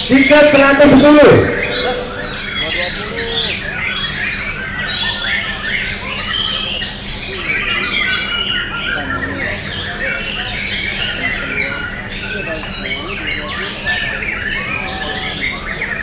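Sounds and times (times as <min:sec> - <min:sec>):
magpie-robin singing: 0:00.0 - 0:16.0
other songbirds singing: 0:00.0 - 0:16.0.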